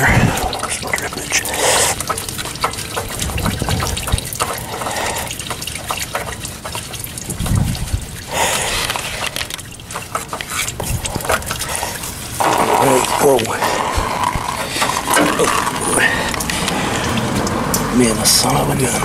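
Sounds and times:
oil trickling into drain pan: 0.0 - 19.0
clicks and scrapes of oil filter: 8.5 - 17.6.

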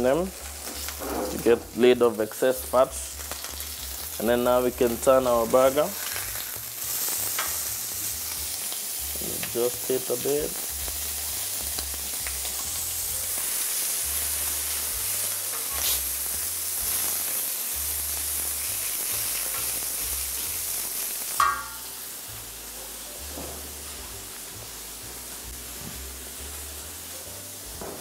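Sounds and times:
meat sizzling on a griddle: 0.0 - 28.0
metal spatula clanking on griddle: 21.4 - 21.9.

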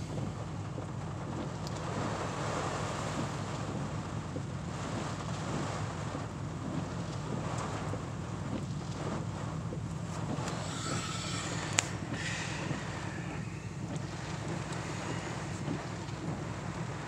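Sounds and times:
heavy rain on vehicle roof: 0.0 - 17.0
wind gusting: 9.3 - 17.0.

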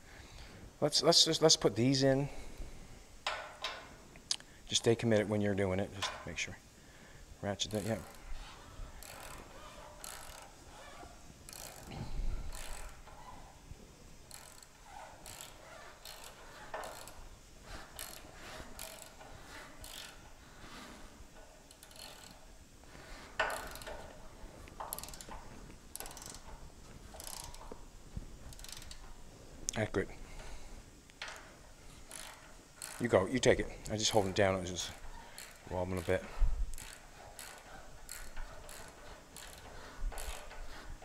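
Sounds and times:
ratchet wrench clicking: 7.7 - 13.3, 14.3 - 22.5, 23.4 - 27.8, 28.5 - 29.2, 31.2 - 40.8.

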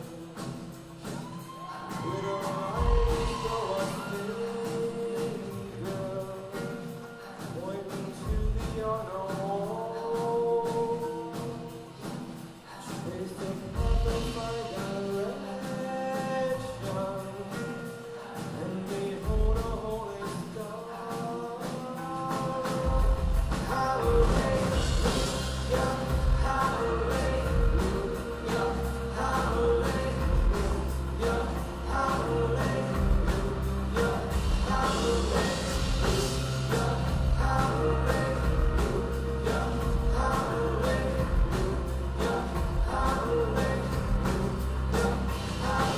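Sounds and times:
music with singing: 0.0 - 45.9
heavy bass line: 23.0 - 45.9.

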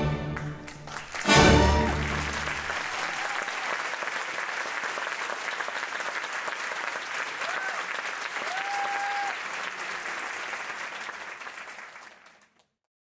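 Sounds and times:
orchestral ballet music: 0.0 - 2.7
audience applause: 0.3 - 12.7.

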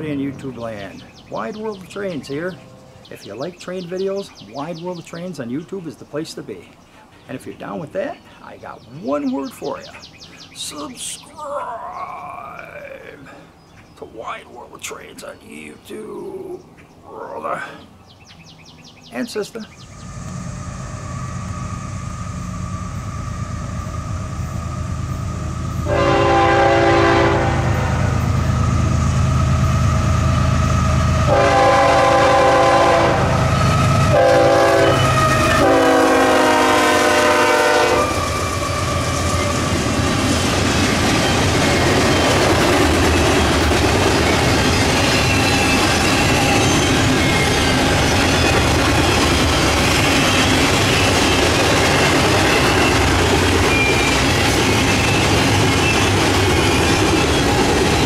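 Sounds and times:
locomotive engine rumble: 19.6 - 58.0
train wheels rattling on rails: 19.8 - 58.0
locomotive air horn: 25.8 - 28.2, 31.3 - 38.8.

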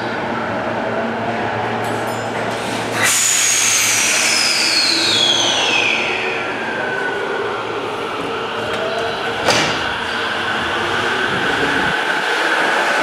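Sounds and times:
train humming: 5.2 - 13.0.

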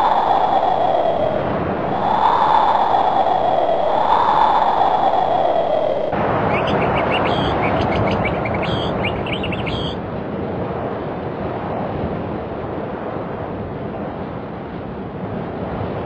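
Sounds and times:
rushing outdoor noise: 0.0 - 16.0
short high chirps: 6.5 - 10.0.

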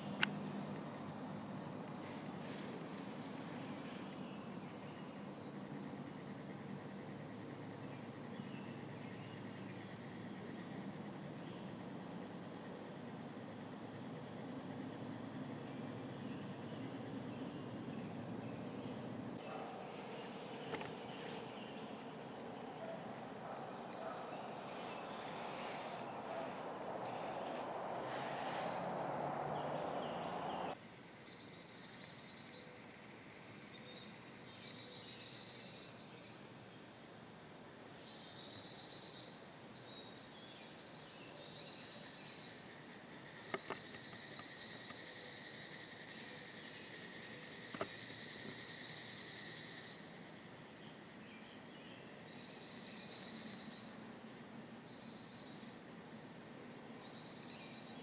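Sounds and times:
insect chorus drone: 0.0 - 58.0
broad hiss: 23.8 - 30.8.

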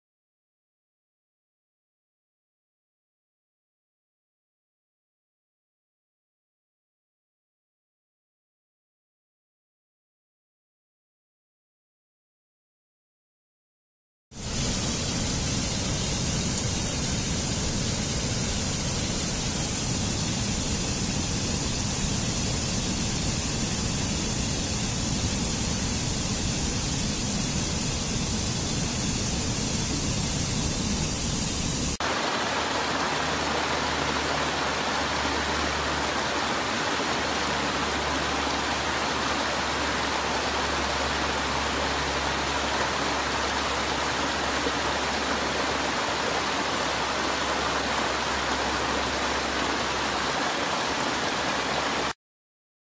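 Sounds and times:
stream water cascading over rocks: 14.4 - 52.2.

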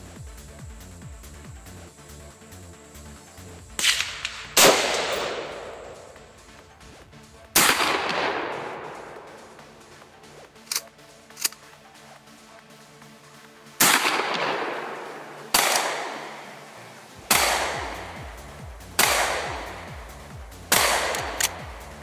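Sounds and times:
faint background music: 0.0 - 22.0
gunshots with long echo: 3.8 - 6.4, 7.5 - 10.0, 13.8 - 22.0.

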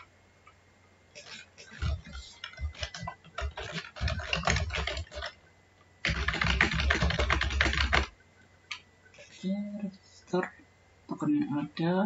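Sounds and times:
computer keyboard typing: 0.0 - 5.4, 6.0 - 9.5.

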